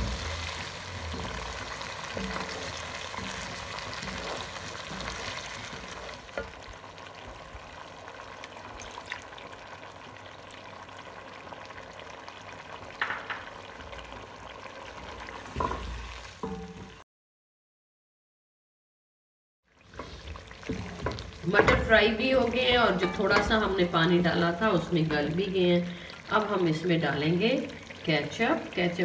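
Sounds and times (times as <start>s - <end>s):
wooden spoon stirring: 0.0s - 7.4s, 19.9s - 23.9s
food sizzling in a pot: 0.0s - 17.0s, 19.7s - 29.0s.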